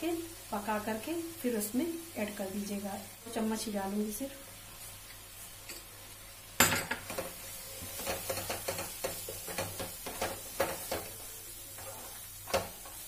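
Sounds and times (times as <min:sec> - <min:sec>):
light sizzle of frying: 0:00.0 - 0:13.0
spatula scraping frying pan: 0:07.0 - 0:13.0.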